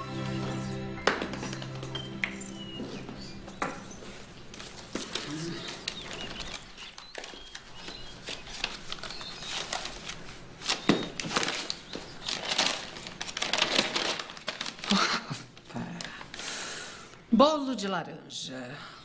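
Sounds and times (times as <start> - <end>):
paper rustling and crinkling: 3.2 - 16.4
paper crackle: 3.8 - 16.4.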